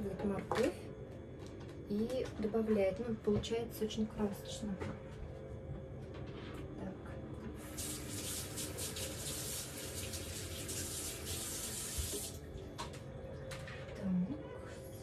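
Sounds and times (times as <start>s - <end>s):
tap water running into sink: 7.6s - 13.0s.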